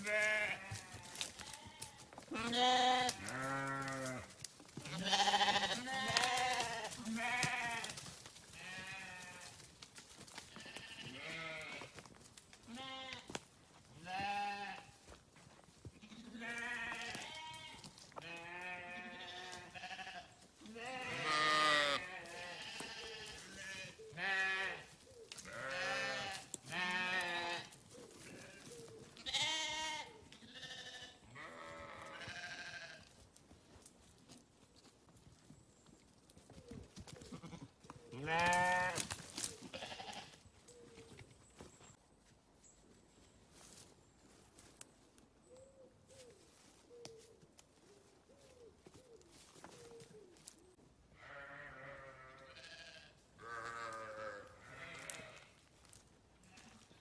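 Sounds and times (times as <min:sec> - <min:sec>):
sheep bleating: 0:00.0 - 0:08.0, 0:08.6 - 0:09.6, 0:10.5 - 0:11.9, 0:12.7 - 0:13.4, 0:14.0 - 0:14.9, 0:16.0 - 0:33.1, 0:37.3 - 0:40.4, 0:51.2 - 0:57.0.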